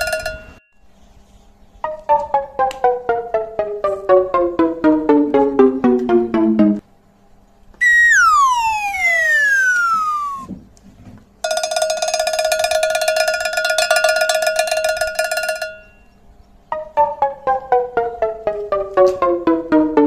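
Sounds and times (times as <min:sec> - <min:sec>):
falling whistle tone: 0:07.8 - 0:10.5
pulsing ringing tone: 0:07.8 - 0:10.5.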